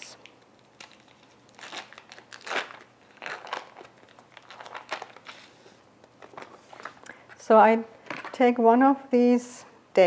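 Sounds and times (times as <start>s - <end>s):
foil wrapper crinkling: 0.3s - 7.0s.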